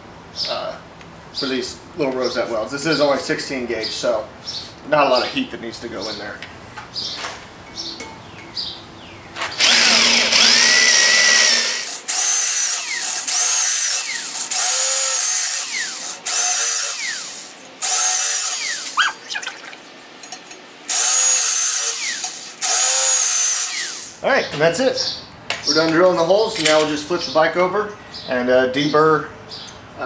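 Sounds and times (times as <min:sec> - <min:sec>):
power drill motor whining: 0:09.6 - 0:19.7, 0:20.9 - 0:24.2.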